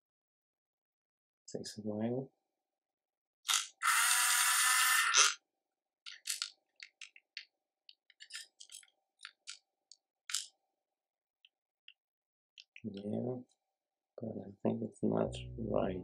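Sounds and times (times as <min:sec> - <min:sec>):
small motor whirring: 0:03.8 - 0:05.4.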